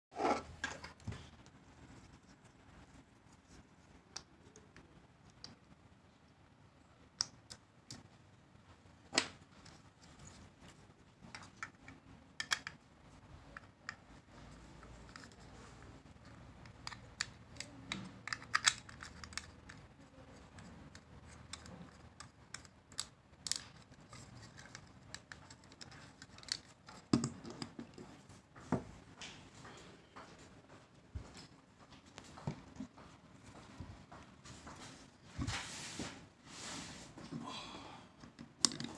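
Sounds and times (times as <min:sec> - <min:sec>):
plastic parts clicking: 0:09.2 - 0:28.0, 0:38.2 - 0:38.9.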